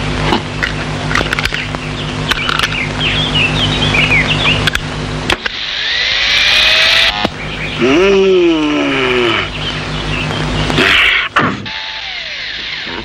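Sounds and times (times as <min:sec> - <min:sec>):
whine rising in pitch: 0:00.0 - 0:13.0
high chirps: 0:01.5 - 0:04.8, 0:05.5 - 0:12.9
tone sliding downward: 0:02.3 - 0:13.0
electric shaver buzzing: 0:05.6 - 0:07.3, 0:11.7 - 0:13.0.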